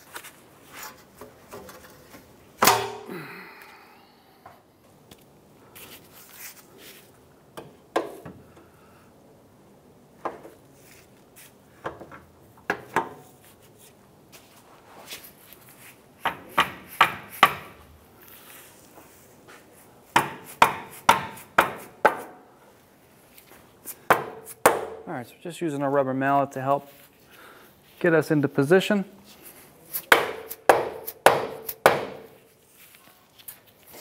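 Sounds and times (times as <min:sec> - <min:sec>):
rubber mallet striking metal: 0:02.6 - 0:03.1.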